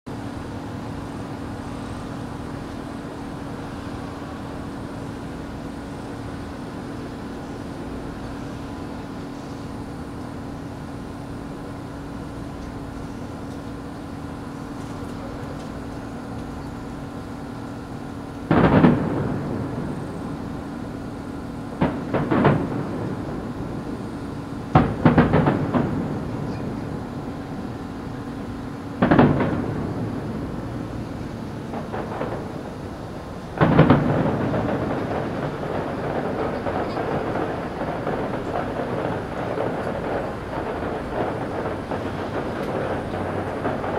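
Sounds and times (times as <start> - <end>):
steady low hum: 0.1 - 43.9
firework shells bursting: 12.6 - 43.9.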